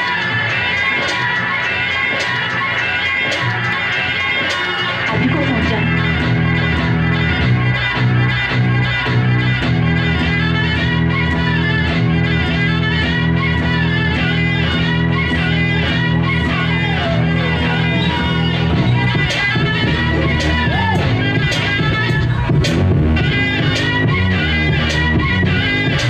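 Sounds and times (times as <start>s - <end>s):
sustained synth bass drone: 5.0s - 26.0s
steady ticking beat: 18.7s - 26.0s.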